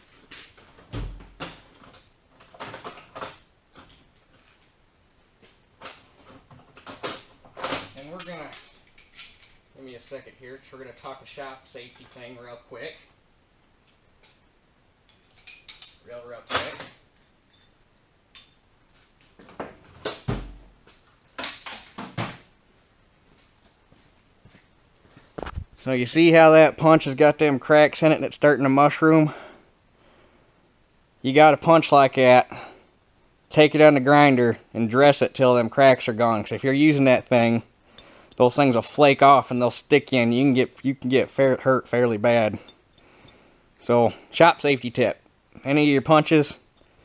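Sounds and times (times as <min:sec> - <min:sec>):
metal tools clanking on workbench: 0:07.0 - 0:11.3
metal hand tools clinking: 0:07.9 - 0:12.4, 0:15.1 - 0:17.8.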